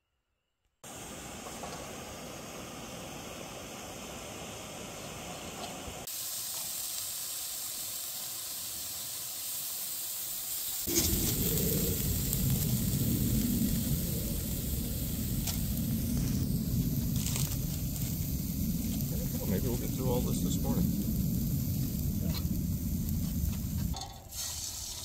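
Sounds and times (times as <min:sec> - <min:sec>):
bacon sizzling in skillet: 0:03.7 - 0:25.0
steady low rumble: 0:10.9 - 0:24.0.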